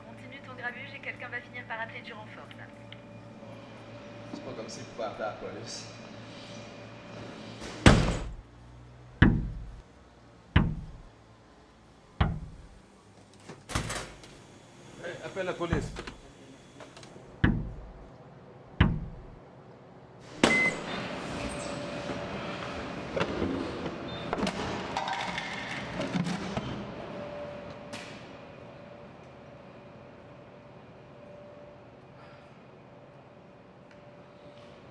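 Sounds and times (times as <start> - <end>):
vending machine clicking and knocking: 9.2 - 9.8, 10.6 - 11.1, 12.2 - 12.8, 15.7 - 16.2, 17.4 - 18.1, 18.8 - 19.4.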